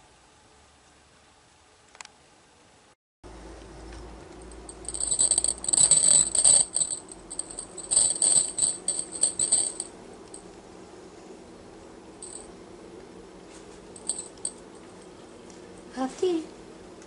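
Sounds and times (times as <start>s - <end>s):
metallic jingling: 4.4s - 9.9s, 12.2s - 12.5s, 14.0s - 14.6s.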